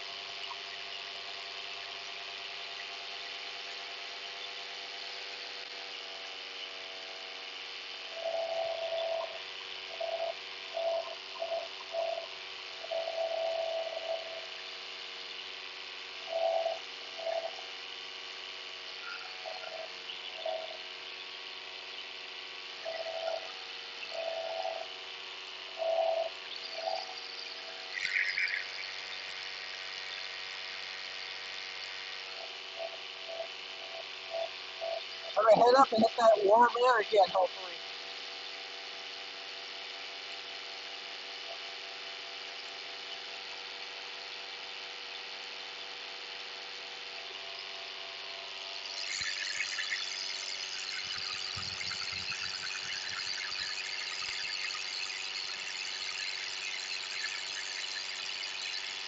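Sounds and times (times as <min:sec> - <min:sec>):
short pitched tones: 0:35.4 - 0:37.8.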